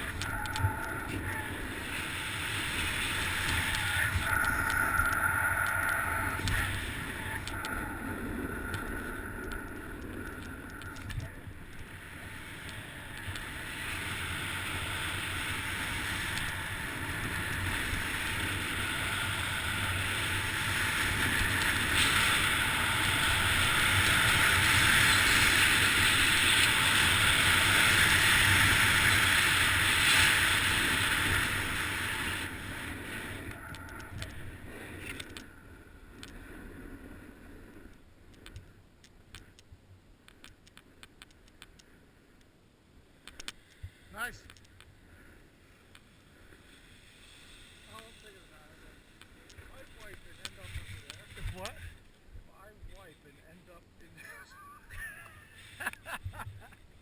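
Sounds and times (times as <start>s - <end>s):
skis scraping over snow: 0.0s - 35.4s, 45.8s - 52.0s.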